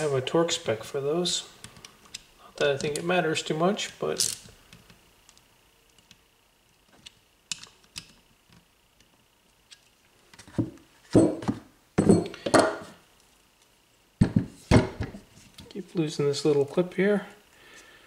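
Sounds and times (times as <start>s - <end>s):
metal part knocking on workbench: 11.2s - 12.9s.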